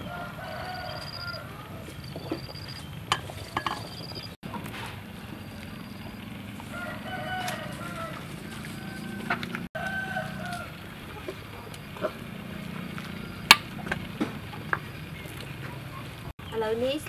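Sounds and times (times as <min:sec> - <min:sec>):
rooster crowing: 0:00.0 - 0:02.6, 0:06.6 - 0:10.9, 0:12.8 - 0:14.0
ladle clinking on pot: 0:02.3 - 0:04.2.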